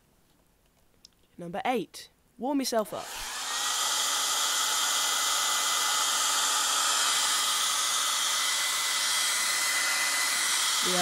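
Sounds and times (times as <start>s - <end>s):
hair dryer running: 3.0s - 11.0s.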